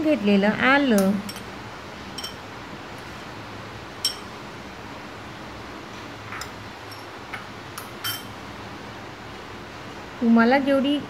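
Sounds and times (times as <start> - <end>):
spoon clinking against glass: 2.1 - 2.4, 4.0 - 4.3, 7.8 - 8.3.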